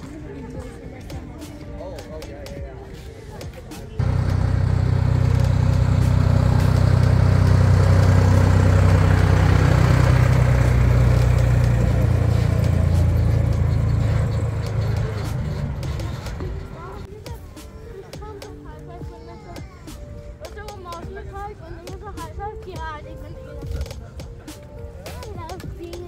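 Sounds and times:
engine running: 0:04.0 - 0:17.1.

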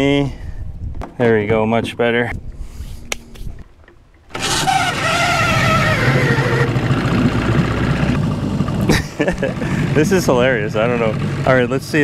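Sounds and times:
outboard motor starting and running: 0:03.7 - 0:12.0.

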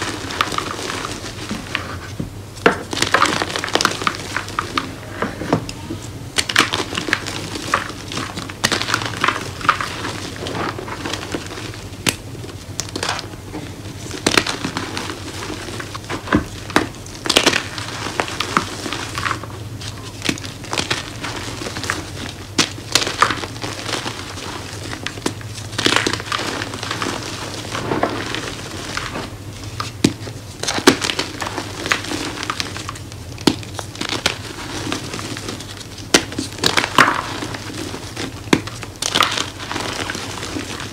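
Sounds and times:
chalk crunching and crackling: 0:00.0 - 0:05.0, 0:06.0 - 0:40.9
chalk pieces snapping: 0:14.2 - 0:29.2, 0:29.8 - 0:40.9.

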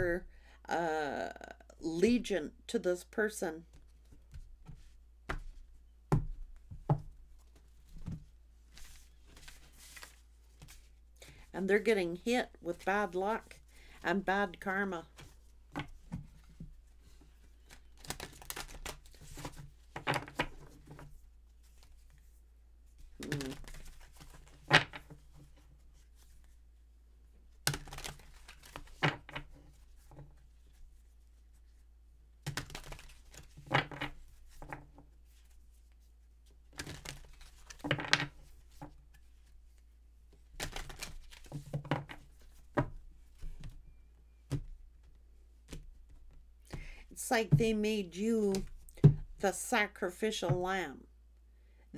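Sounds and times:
cards rustling: 0:08.7 - 0:11.0, 0:16.3 - 0:21.0, 0:23.0 - 0:26.6, 0:27.7 - 0:30.8, 0:32.4 - 0:35.5, 0:36.8 - 0:42.7.

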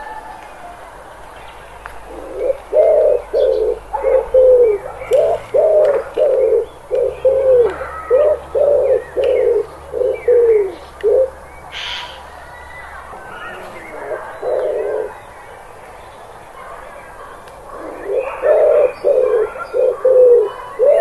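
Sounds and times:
small birds chirping: 0:00.0 - 0:21.0
pigeons cooing: 0:02.0 - 0:12.4, 0:13.2 - 0:15.4, 0:16.6 - 0:21.0.

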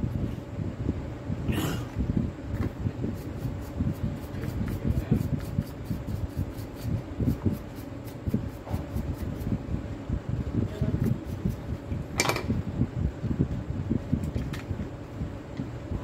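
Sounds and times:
faint steady hum: 0:00.0 - 0:16.0
brush bristles scrubbing plastic: 0:03.0 - 0:09.6.

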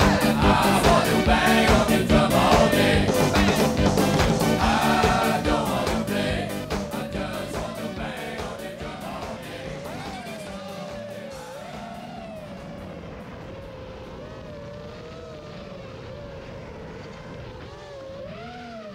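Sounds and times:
background music: 0:00.0 - 0:12.5
quadcopter motors whining: 0:00.0 - 0:18.9.

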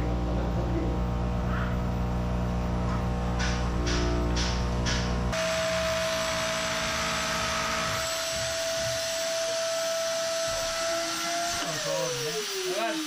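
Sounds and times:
vacuum cleaner running: 0:00.0 - 0:13.0.

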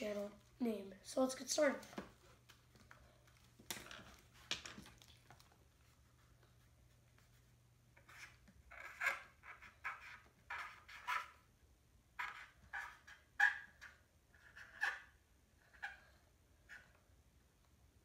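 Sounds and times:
marker squeaking on paper: 0:08.0 - 0:11.5, 0:12.2 - 0:17.0.

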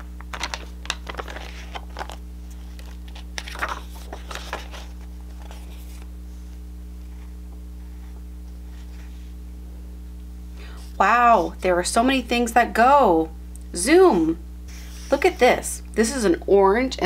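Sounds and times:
paper pages rustling: 0:00.0 - 0:07.3
steady low hum: 0:00.0 - 0:17.0.

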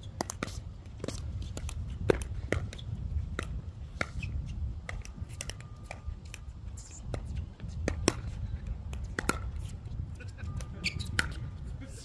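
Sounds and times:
wind rumble on microphone: 0:00.0 - 0:12.0
paddles hitting plastic ball: 0:00.1 - 0:04.2, 0:07.8 - 0:09.6.

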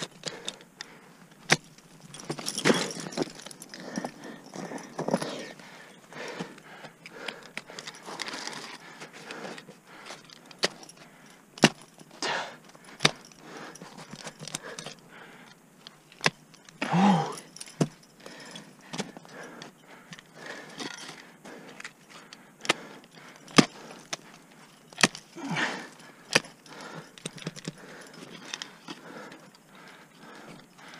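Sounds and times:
metal climbing hardware jingling: 0:00.0 - 0:30.9
person grunting: 0:16.8 - 0:17.4, 0:25.4 - 0:25.9.

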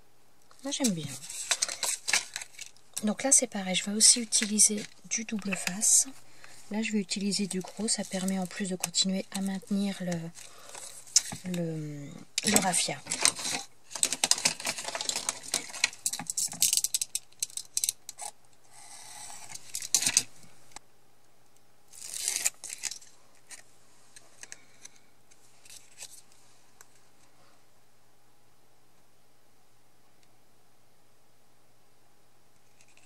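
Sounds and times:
tape crackling as peeled: 0:00.5 - 0:11.6, 0:12.4 - 0:18.6, 0:19.3 - 0:20.4, 0:21.9 - 0:27.0, 0:32.6 - 0:33.0.

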